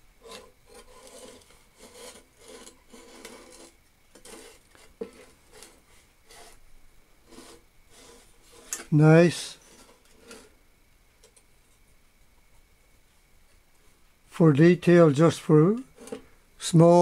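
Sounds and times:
metal scraping on wood: 0:00.2 - 0:06.6, 0:07.2 - 0:08.9, 0:09.5 - 0:10.6, 0:15.8 - 0:16.3.

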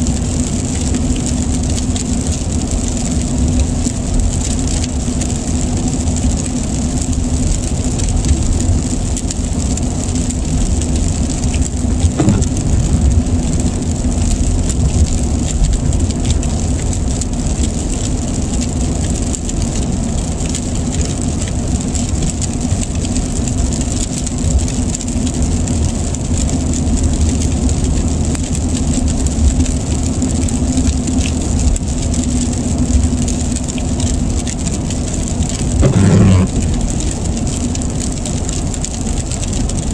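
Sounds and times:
car road noise inside cabin: 0:00.0 - 0:39.9
rain on windshield: 0:00.0 - 0:39.9.

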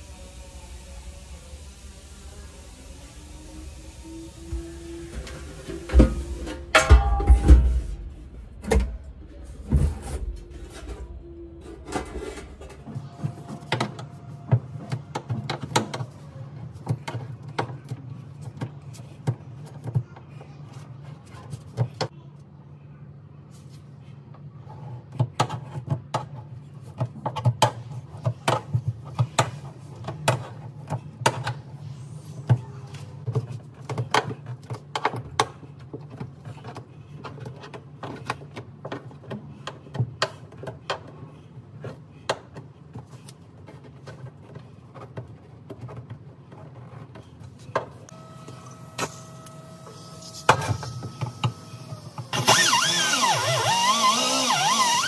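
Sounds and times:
pneumatic cutting tool cutting steel: 0:49.0 - 0:55.0.

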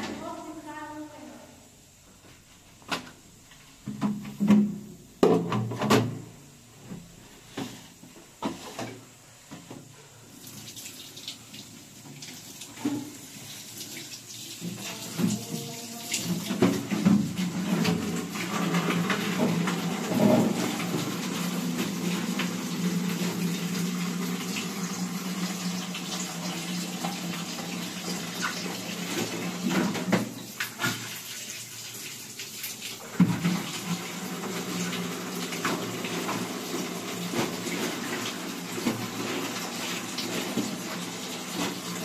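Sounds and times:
water running and splashing: 0:10.2 - 0:42.0.

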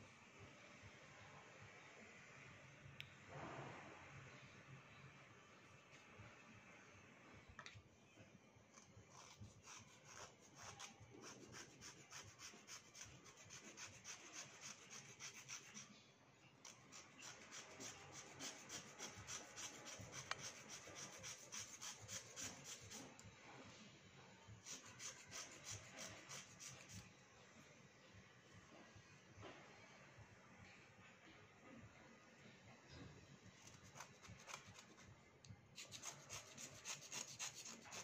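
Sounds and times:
blade rasping slate pencil: 0:08.8 - 0:15.9, 0:16.6 - 0:23.2, 0:24.6 - 0:27.0, 0:35.8 - 0:38.0.

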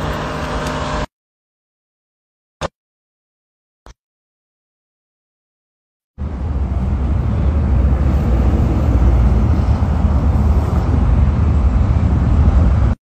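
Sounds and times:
loud low rumble of road traffic: 0:00.0 - 0:01.1, 0:06.2 - 0:13.0.

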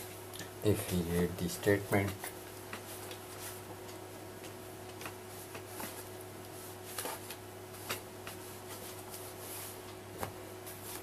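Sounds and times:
steady low hum: 0:00.0 - 0:11.0
cloth wiping a whiteboard: 0:05.3 - 0:09.8.

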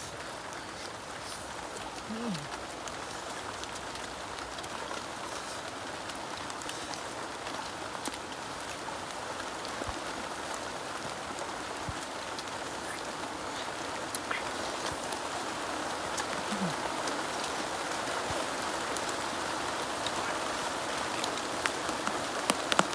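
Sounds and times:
steady outdoor hiss: 0:00.0 - 0:22.9
faint clicks: 0:20.0 - 0:22.9.

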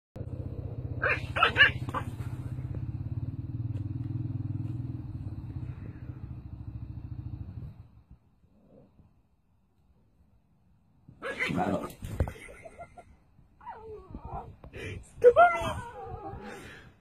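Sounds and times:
low pulsing rumble: 0:00.2 - 0:08.5
small dog yapping: 0:01.0 - 0:02.3, 0:11.2 - 0:12.0.

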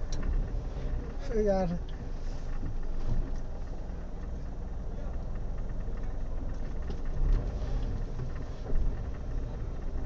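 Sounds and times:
car engine idling: 0:00.0 - 0:10.0
faint voices in the street: 0:02.6 - 0:07.4.

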